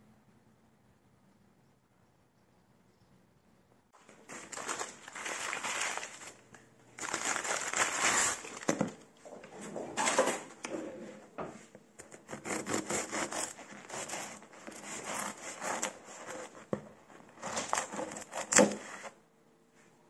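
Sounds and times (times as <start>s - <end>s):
knife sawing through bread roll: 12.1s - 19.1s.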